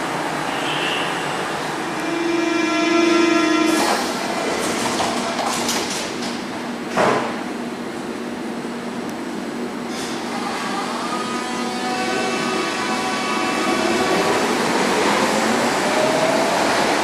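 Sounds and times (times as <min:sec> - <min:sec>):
train humming: 0:00.0 - 0:17.0
train doors sliding shut: 0:03.6 - 0:07.4.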